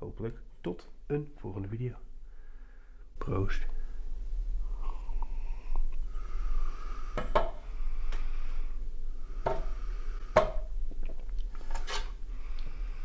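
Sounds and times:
soft breathing: 0:02.2 - 0:10.8, 0:11.5 - 0:13.0.

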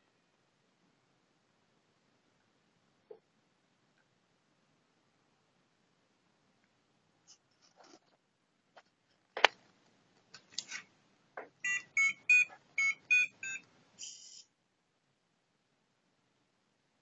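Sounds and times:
piezo buzzer beeping melody: 0:11.6 - 0:13.6.

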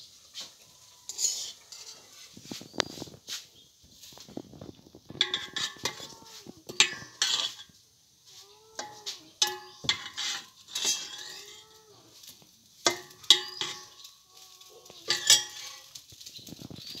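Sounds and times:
spoon scraping metal pot: 0:01.0 - 0:03.0, 0:05.1 - 0:07.8, 0:08.8 - 0:16.1.

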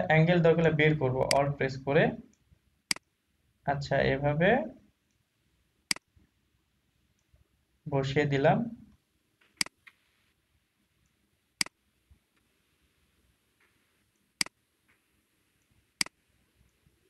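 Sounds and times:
computer mouse clicks: 0:09.5 - 0:10.0.

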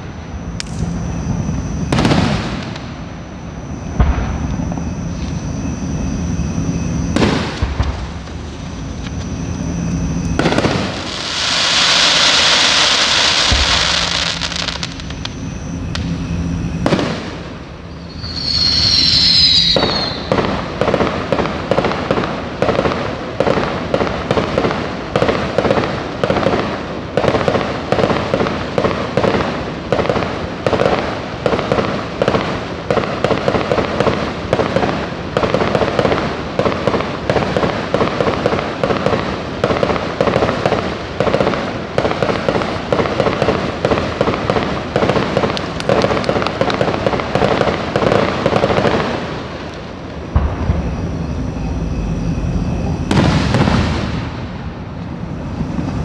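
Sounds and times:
firework bursts: 0:00.0 - 0:56.0
firework hissing: 0:10.3 - 0:22.2
falling whistle: 0:17.9 - 0:20.4.

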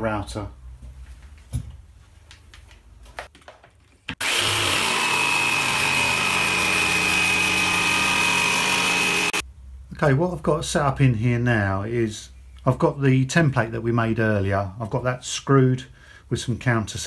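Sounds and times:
jigsaw cutting plywood: 0:04.1 - 0:09.4.

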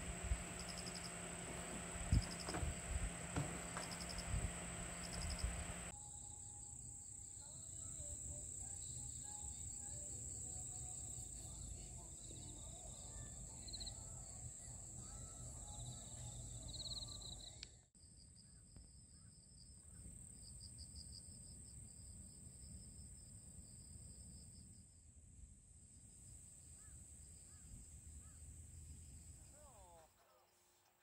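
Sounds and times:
insects chirping: 0:00.0 - 0:17.6.

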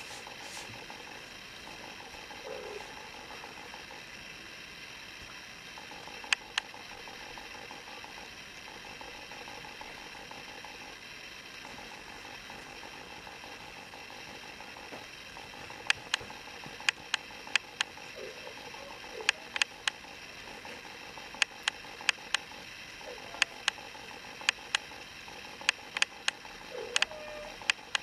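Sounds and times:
low steady hum: 0:00.0 - 0:28.0
sharp clicks in pairs: 0:19.2 - 0:20.0, 0:23.4 - 0:23.8, 0:24.4 - 0:24.9, 0:25.6 - 0:26.4, 0:27.0 - 0:28.0.

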